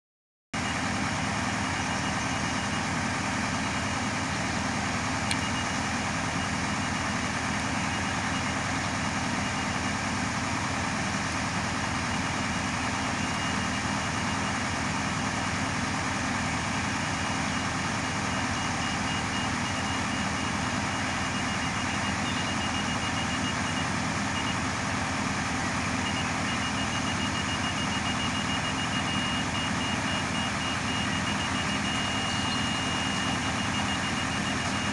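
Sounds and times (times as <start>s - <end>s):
diesel machinery engine drone: 0.6s - 34.9s
high-pitched beeping: 26.0s - 34.9s.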